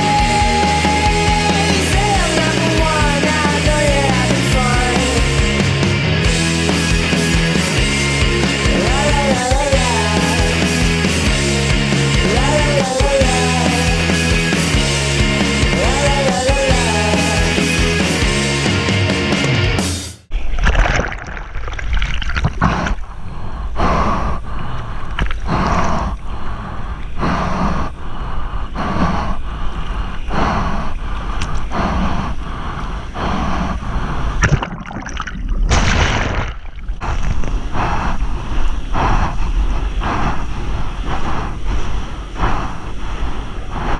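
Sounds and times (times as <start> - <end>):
water splashing around surfboard: 20.3 - 23.2, 34.3 - 37.7
wind rumble on microphone: 36.8 - 43.9.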